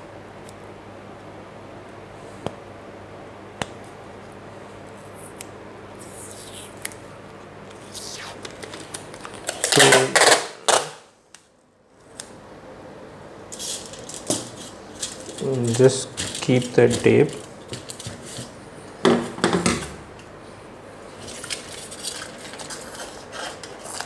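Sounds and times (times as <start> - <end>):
packing tape screeching off roll: 9.5 - 11.0
tape rustling on foil: 13.5 - 18.6, 21.2 - 24.0.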